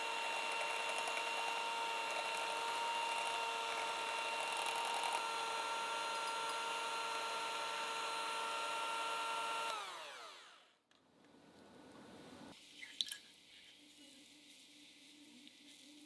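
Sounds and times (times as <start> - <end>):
electric hand mixer whining: 0.0 - 10.7.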